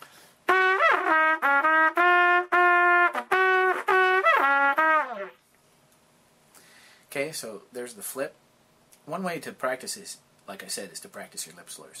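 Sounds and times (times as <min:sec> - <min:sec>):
trumpet playing: 0:00.5 - 0:05.4.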